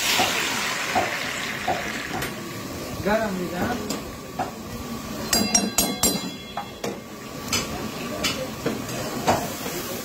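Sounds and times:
metal spoon knocking on a pan: 0:05.3 - 0:08.4.

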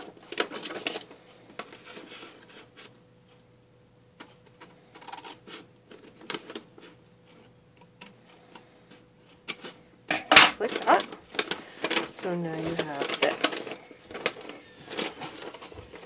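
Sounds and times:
paper rustle: 0:00.0 - 0:02.9, 0:04.5 - 0:07.0, 0:10.6 - 0:16.0.

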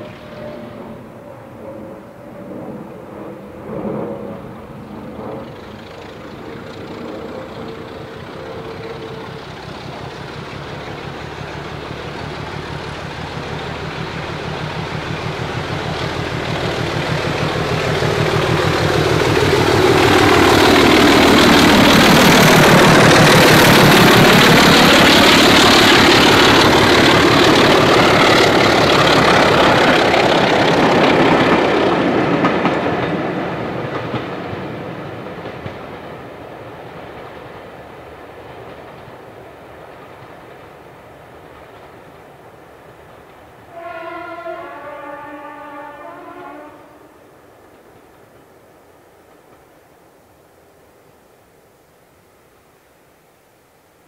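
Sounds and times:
train wheel noise: 0:00.0 - 0:50.0
diesel locomotive engine: 0:00.0 - 0:52.6.

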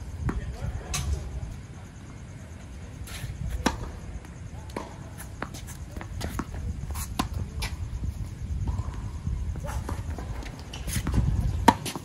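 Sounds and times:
players' footsteps: 0:03.5 - 0:12.0
tennis ball bounces: 0:09.6 - 0:12.0.

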